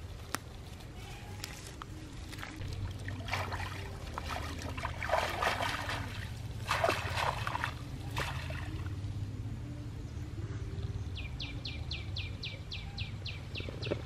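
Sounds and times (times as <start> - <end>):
hand squelching in muddy soil: 0.7 - 8.8
steady low hum: 1.7 - 13.6.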